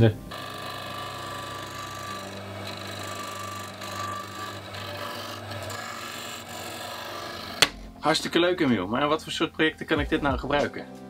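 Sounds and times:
disc sander humming: 0.0 - 8.6
wood rubbing on sanding disc: 0.3 - 7.9.

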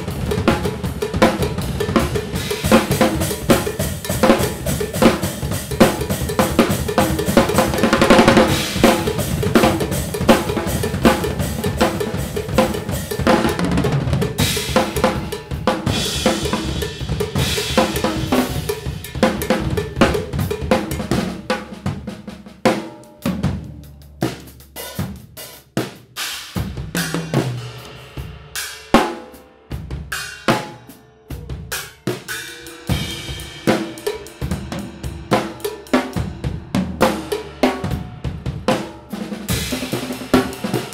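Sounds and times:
drum kits playing: 0.0 - 40.9
cymbals ringing: 31.2 - 36.2.

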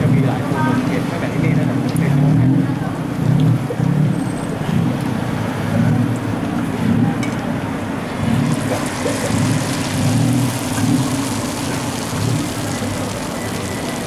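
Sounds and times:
batter sizzling in hot oil: 8.1 - 14.0.

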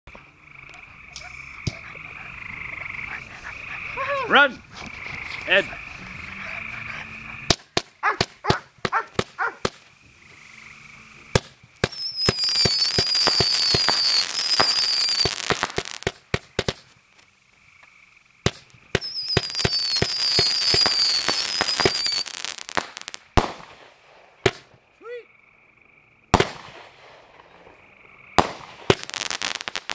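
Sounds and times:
fireworks crackling: 0.1 - 6.4, 7.4 - 10.3, 11.2 - 17.7, 18.4 - 25.0, 26.3 - 29.9
firework bangs: 7.4 - 10.0, 11.3 - 17.0, 18.4 - 24.9, 26.3 - 29.9
falling firework whistles: 11.3 - 17.0, 18.4 - 24.8, 28.4 - 29.9.

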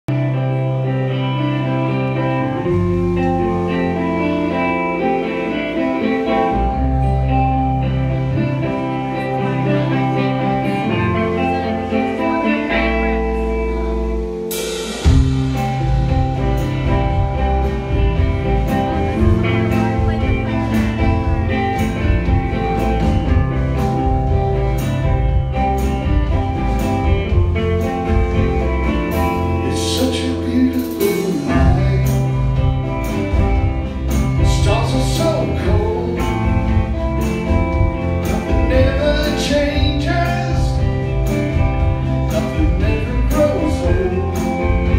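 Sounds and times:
bass guitar: 0.0 - 44.9
electric guitar: 0.0 - 44.9
drum kit beat: 12.8 - 44.9
man singing: 29.3 - 32.9, 34.3 - 44.9.

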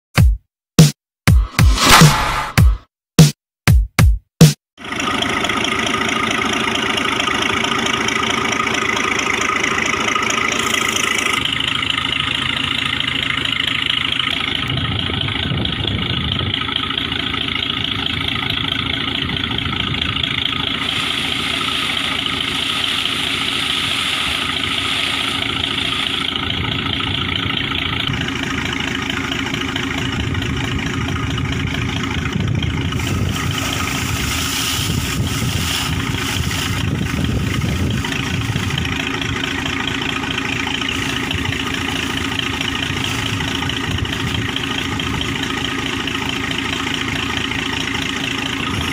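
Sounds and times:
compressed air rushing water out: 1.7 - 2.6, 20.8 - 26.3, 32.9 - 38.7
air compressor engine running: 4.8 - 48.9.

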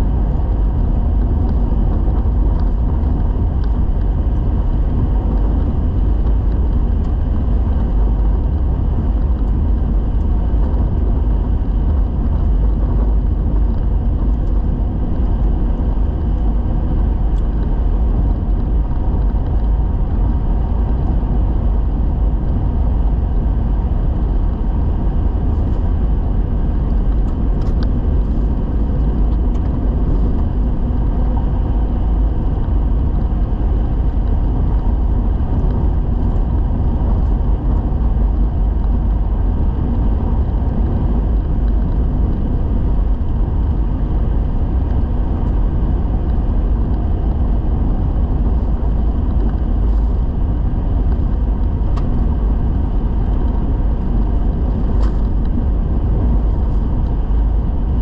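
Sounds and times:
vehicle driving on gravel road: 0.0 - 58.0.

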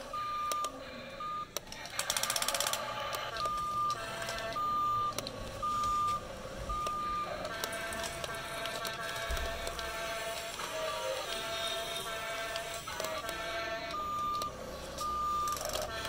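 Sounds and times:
high electronic warning beeps: 0.0 - 1.6, 3.3 - 7.5, 13.8 - 16.0.

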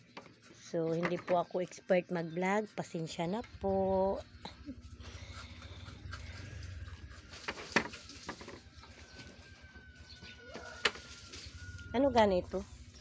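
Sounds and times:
low steady rumble: 2.9 - 13.0.

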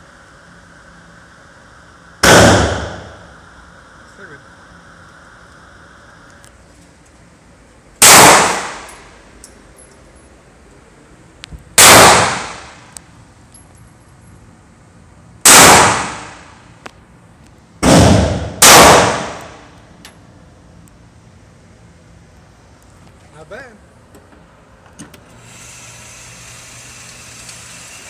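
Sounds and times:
pistol shots echoing: 2.2 - 3.1, 8.0 - 8.9, 11.8 - 12.7, 15.5 - 16.4, 17.8 - 19.6.

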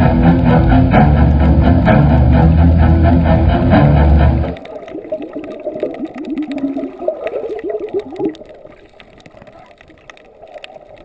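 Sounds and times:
underwater air bubbles gurgling: 0.0 - 11.0
faint clicks: 4.4 - 11.0.

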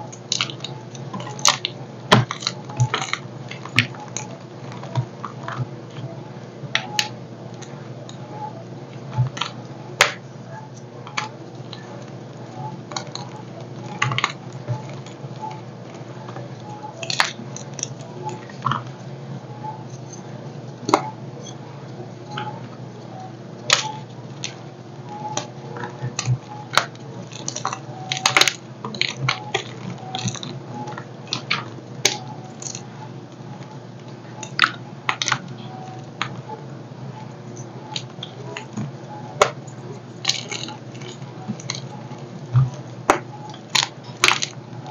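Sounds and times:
chalk blocks crunching and cracking: 0.0 - 5.7, 9.0 - 19.0, 23.7 - 36.4, 37.6 - 44.6
steady low hum: 0.0 - 44.9.

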